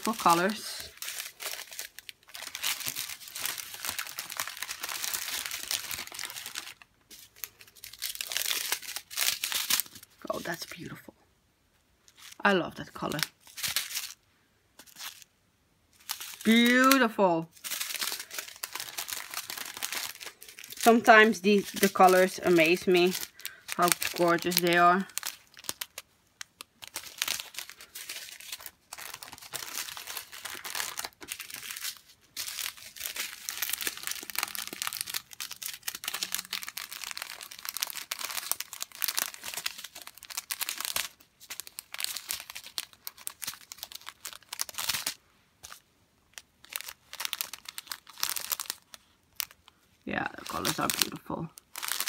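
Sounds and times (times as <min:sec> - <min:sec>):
plastic bags crinkling: 0:00.0 - 0:10.8, 0:12.0 - 0:15.3, 0:15.9 - 0:52.0.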